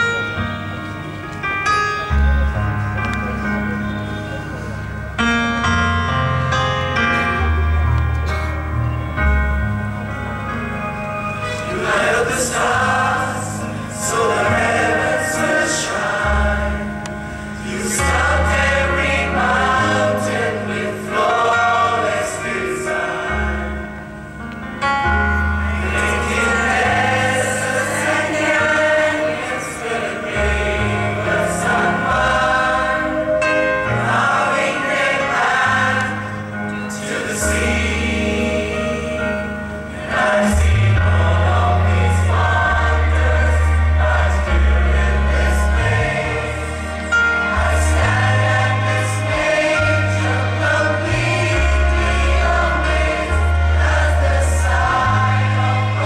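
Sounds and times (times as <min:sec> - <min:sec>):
instrumental accompaniment: 0:00.0 - 0:56.0
choir singing gospel song: 0:11.4 - 0:24.4, 0:25.1 - 0:56.0.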